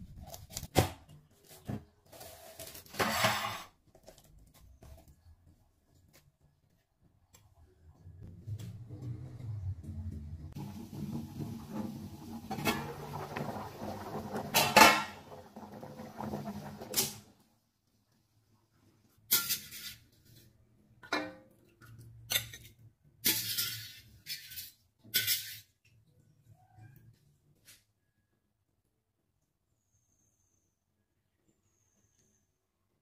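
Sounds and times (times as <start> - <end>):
metal cookware clattering and scraping: 2.9 - 3.7, 12.4 - 17.2, 19.3 - 20.3, 22.3 - 25.8.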